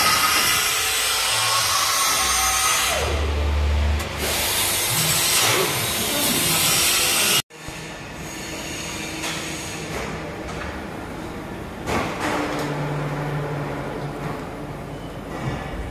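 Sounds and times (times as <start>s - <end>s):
power tools hissing and whirring: 0.0s - 9.9s.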